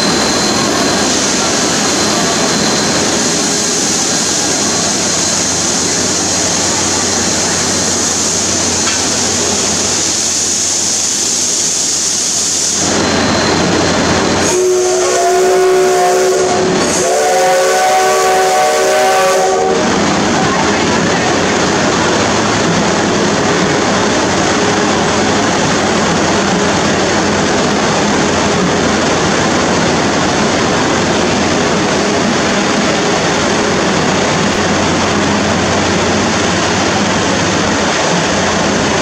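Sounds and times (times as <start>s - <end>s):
steam hissing: 0.0s - 39.0s
locomotive chime whistle: 12.9s - 19.8s.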